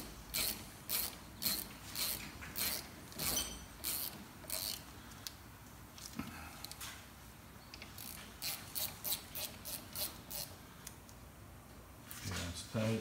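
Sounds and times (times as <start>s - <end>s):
hand ratchet clicking: 0.0s - 5.4s, 7.8s - 10.5s.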